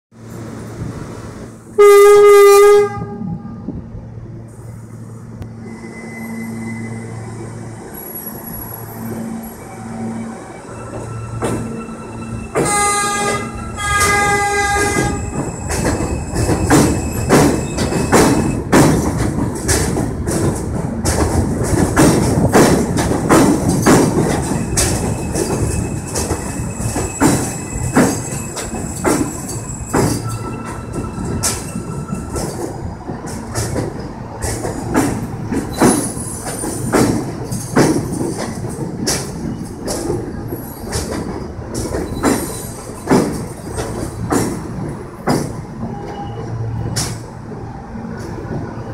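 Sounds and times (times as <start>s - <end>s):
subway train rumble: 0.1s - 48.9s
wheels clacking over rail joints: 12.5s - 47.3s.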